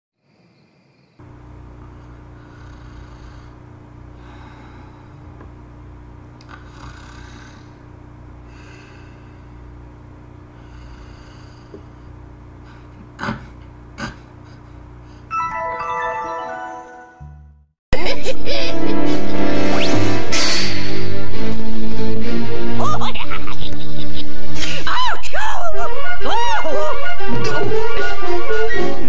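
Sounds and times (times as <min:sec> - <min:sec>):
steady low hum: 0:01.2 - 0:15.3
cartoon snoring: 0:02.0 - 0:03.6, 0:06.5 - 0:07.8, 0:10.6 - 0:12.0, 0:12.7 - 0:14.6.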